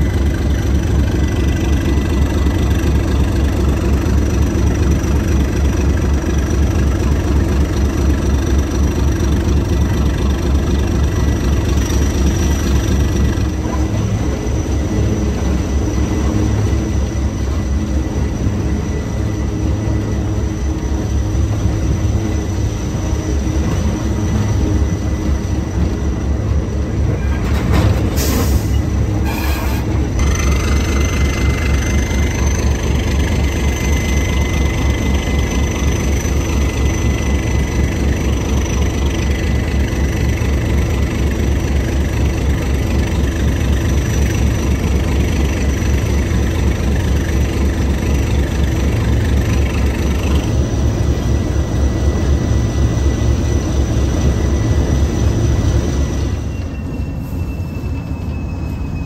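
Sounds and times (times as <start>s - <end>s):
diesel locomotive engine running: 0.0s - 59.0s.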